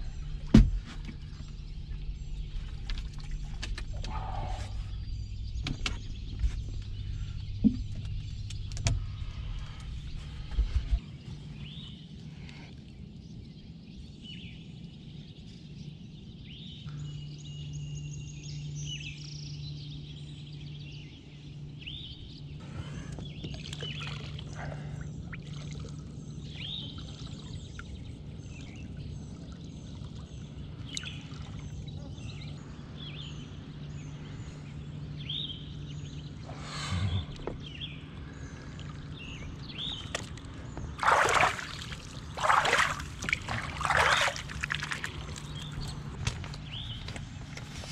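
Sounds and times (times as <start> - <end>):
birds chirping: 0.0 - 47.9
low steady hum: 0.0 - 47.9
water splashing against boat hull: 39.8 - 46.8.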